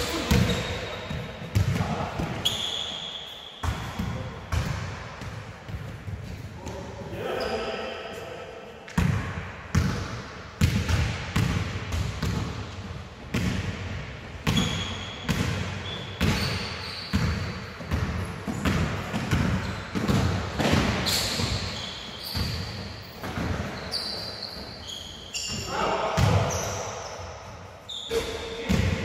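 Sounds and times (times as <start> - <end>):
basketballs bouncing on floor: 0.0 - 2.6, 3.6 - 6.8, 8.9 - 23.9, 25.5 - 26.7
short high squeaks: 2.4 - 3.6, 23.7 - 25.7.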